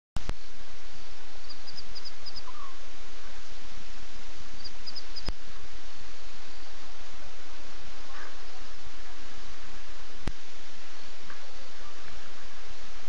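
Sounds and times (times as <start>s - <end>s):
outdoor background hiss: 0.2s - 13.0s
small animal chirps: 1.4s - 2.8s, 4.6s - 5.3s.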